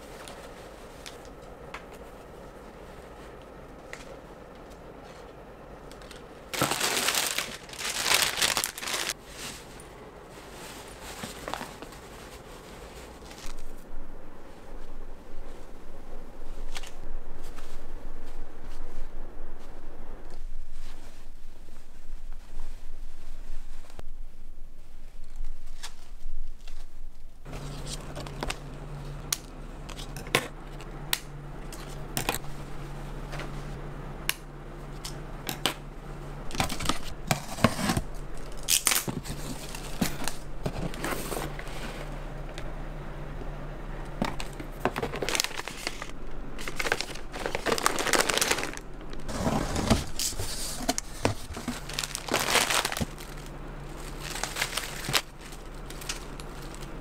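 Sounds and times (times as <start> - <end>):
steady low hum: 0.0 - 57.0
packaging crinkling: 6.0 - 9.5, 36.5 - 41.7, 44.3 - 57.0.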